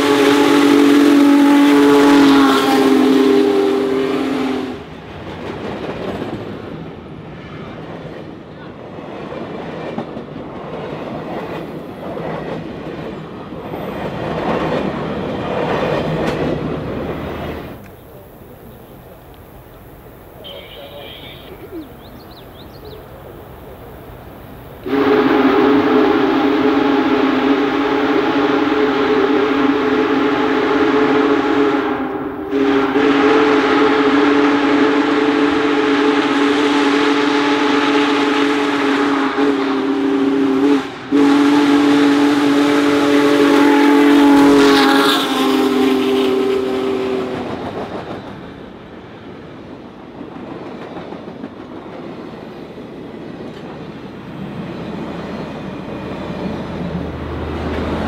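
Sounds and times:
chime steam whistle blasts: 0.0 - 4.8, 24.8 - 46.7
train running noise: 0.0 - 58.0.

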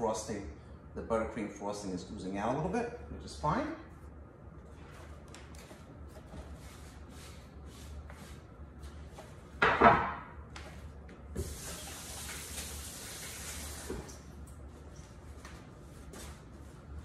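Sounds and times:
cutting board clattering on counter: 9.6 - 10.2
kitchen tap running: 11.4 - 14.6.

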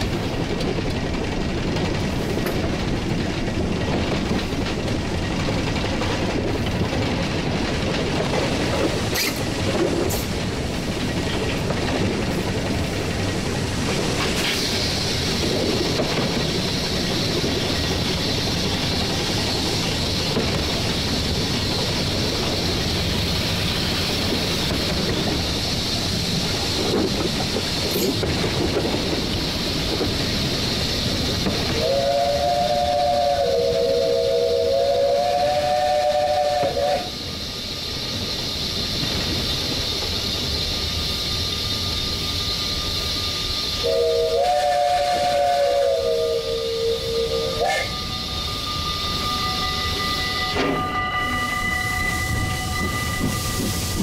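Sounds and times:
train rumbling on track: 0.0 - 54.0
steady high hiss: 35.7 - 54.0.

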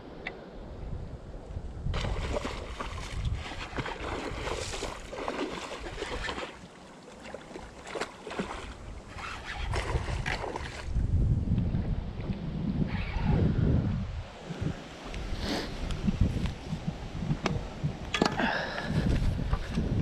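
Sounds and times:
wind rumble on microphone: 0.0 - 6.4, 8.4 - 20.0
clicks and knocks: 17.4 - 18.4.

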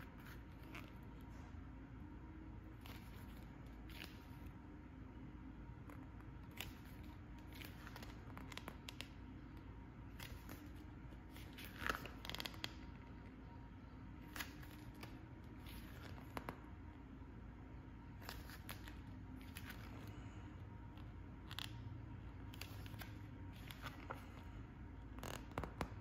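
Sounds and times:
low steady hum: 0.0 - 26.0
paper pages rustling: 22.5 - 24.5.

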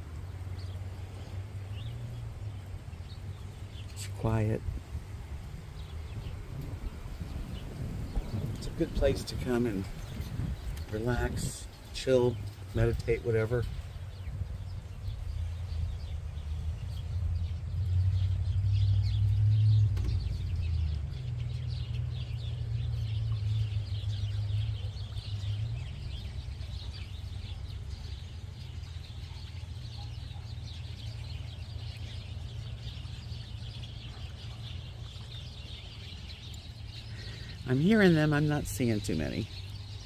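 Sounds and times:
low rumble: 0.0 - 30.0
wild birds chirping and calling: 0.0 - 40.0.

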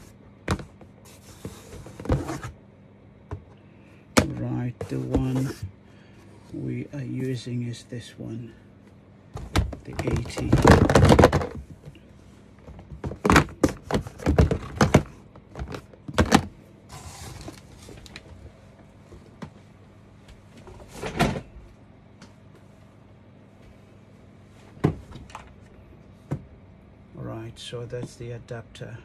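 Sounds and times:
plastic cases clattering: 9.4 - 12.0, 12.6 - 16.6.

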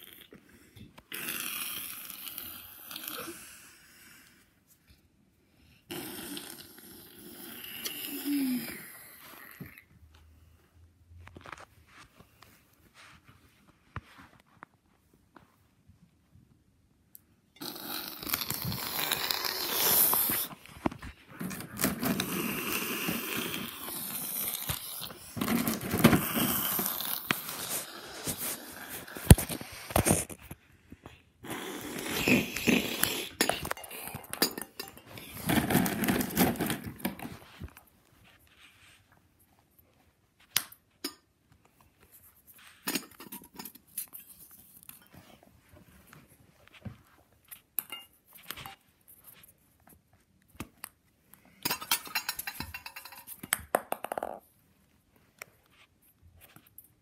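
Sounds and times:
toy food and bowl clattering: 33.3 - 37.4, 51.6 - 54.5.

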